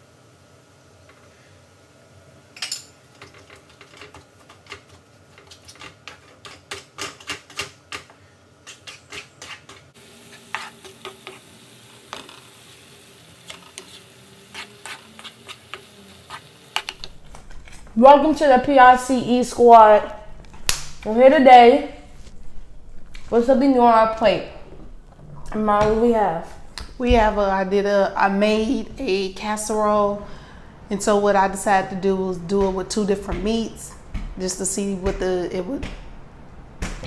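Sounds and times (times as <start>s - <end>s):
wooden spatula scraping a pan: 8.7s - 11.4s, 13.5s - 16.7s
faint meat sizzle: 10.0s - 16.9s.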